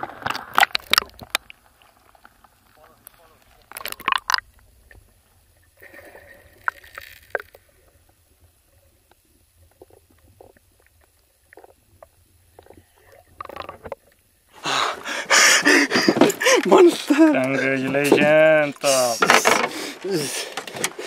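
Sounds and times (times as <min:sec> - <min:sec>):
underwater gurgling and sloshing: 0:00.0 - 0:14.6.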